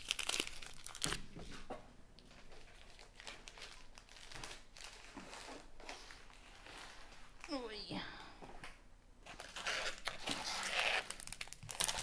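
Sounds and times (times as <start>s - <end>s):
plastic bags crinkling: 0.0s - 1.3s, 2.3s - 7.6s, 9.2s - 12.0s.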